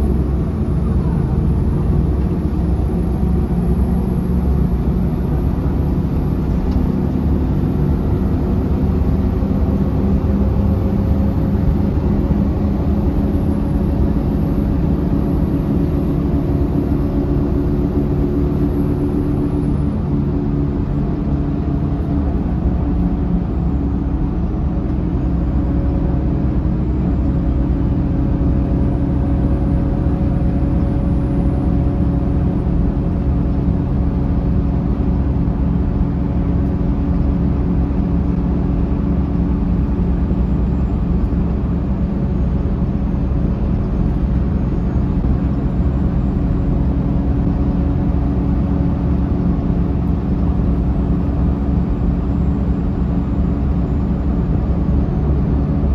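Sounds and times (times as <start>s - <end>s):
bus diesel engine hum: 0.0s - 55.9s
road and tyre rumble: 0.0s - 55.9s.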